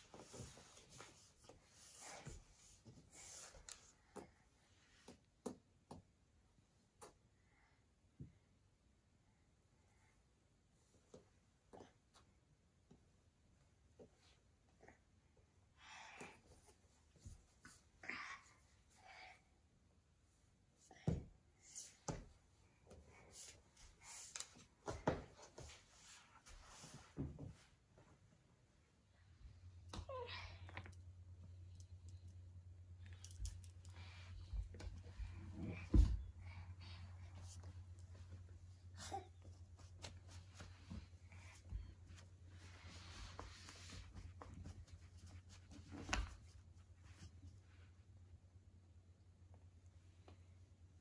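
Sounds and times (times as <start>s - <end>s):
clothing rustling: 33.4s - 47.9s.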